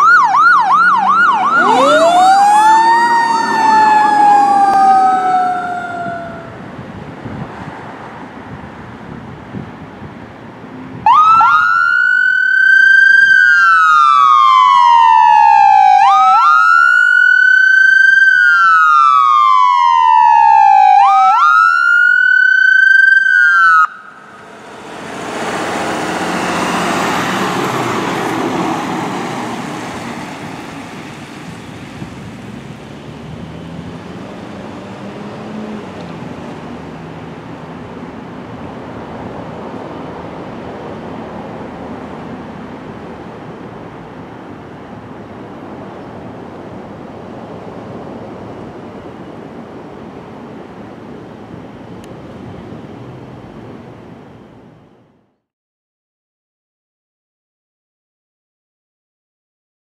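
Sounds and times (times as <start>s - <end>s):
ambulance siren wailing: 0.0s - 6.7s, 11.0s - 29.2s
vehicle engine and tyres rumbling: 0.0s - 11.7s, 23.6s - 55.4s.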